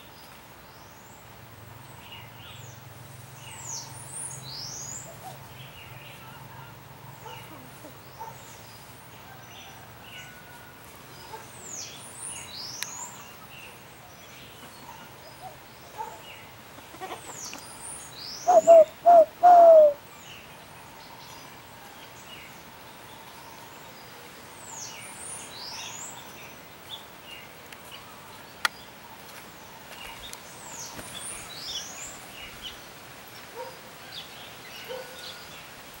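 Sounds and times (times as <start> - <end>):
small birds chirping: 11.2 - 35.8
dove cooing: 18.4 - 20.0.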